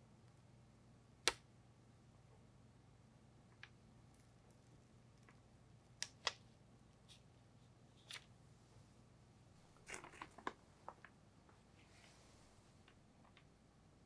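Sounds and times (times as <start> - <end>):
baking paper crinkling: 9.7 - 13.0.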